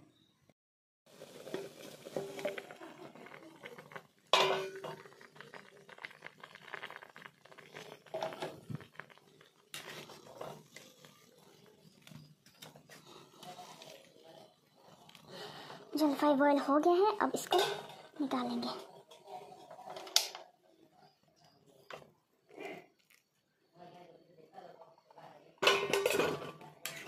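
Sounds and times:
water boiling in a wok: 1.1s - 23.8s, 24.6s - 27.0s
metal utensils clattering: 4.3s - 5.1s, 17.4s - 20.4s, 25.6s - 27.0s.

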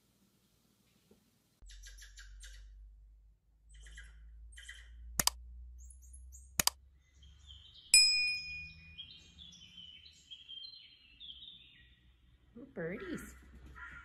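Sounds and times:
mouse clicks: 6.6s - 6.8s
ringing bell ding: 8.0s - 9.0s.

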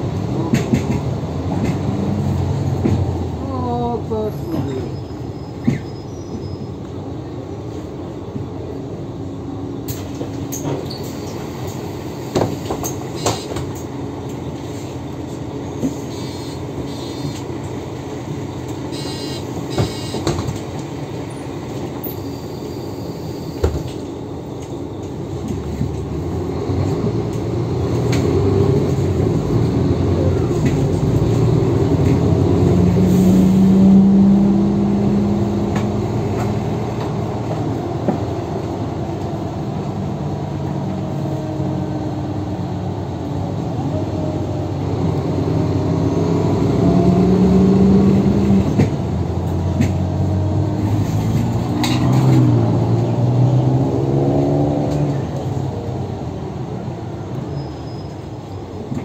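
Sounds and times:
bus engine and cabin noise: 0.0s - 59.0s.

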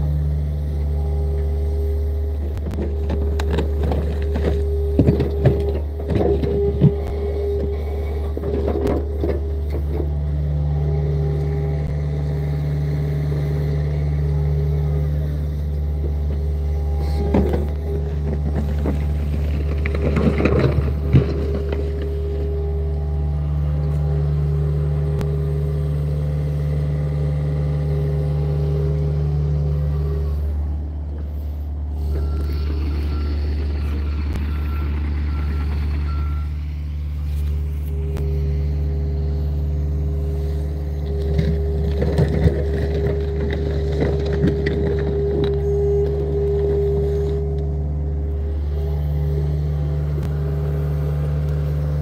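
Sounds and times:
diesel engine running: 0.0s - 52.0s
bucket scraping through dirt and rocks: 17.0s - 22.6s, 40.4s - 47.5s
travel alarm beeping: 32.0s - 36.7s.

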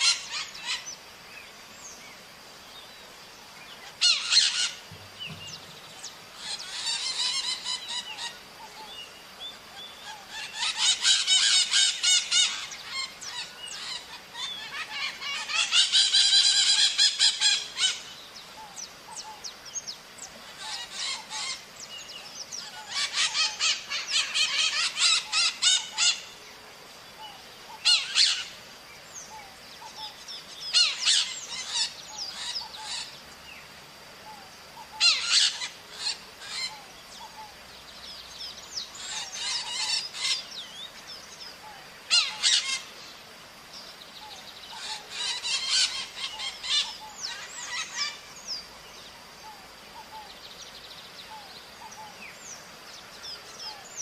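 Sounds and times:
parrots screeching: 0.0s - 0.8s, 3.9s - 4.8s, 6.4s - 8.3s, 10.3s - 18.0s, 20.5s - 21.6s, 22.6s - 26.2s, 27.8s - 28.5s, 30.7s - 33.1s, 35.0s - 36.8s, 39.0s - 40.4s, 42.1s - 42.9s, 44.8s - 48.2s.

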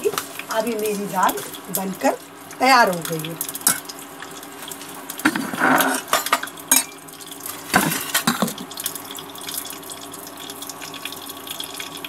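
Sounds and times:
steady hum with faint hiss: 0.0s - 12.0s
steel cookware clinking: 3.6s - 3.9s, 5.7s - 7.0s.

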